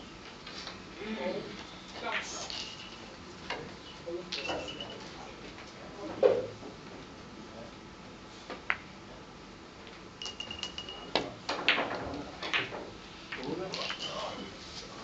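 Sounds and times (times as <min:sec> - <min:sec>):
billiard balls clicking: 0:09.9 - 0:14.1.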